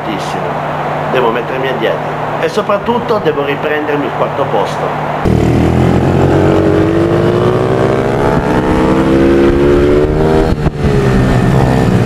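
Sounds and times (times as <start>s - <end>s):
motorbike engine accelerating: 5.1s - 12.0s.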